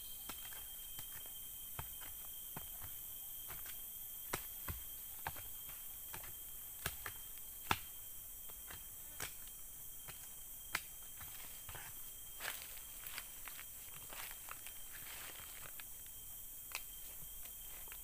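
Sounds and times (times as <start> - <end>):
insect drone: 0.0 - 18.0
digging tool chopping into soil: 6.1 - 8.0.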